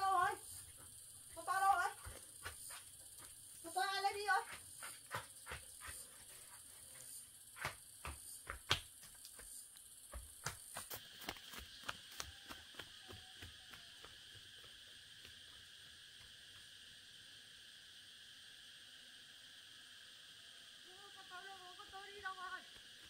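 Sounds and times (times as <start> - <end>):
insects droning: 0.0 - 23.0
running footsteps on dirt: 0.6 - 3.8, 4.4 - 7.0, 7.6 - 16.8.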